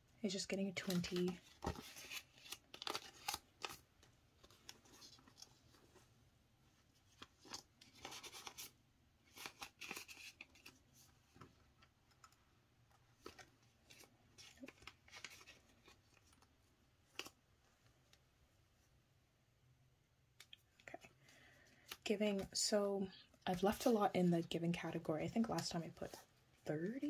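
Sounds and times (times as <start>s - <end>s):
banknotes crinkling: 0.5s - 6.1s, 6.8s - 17.4s.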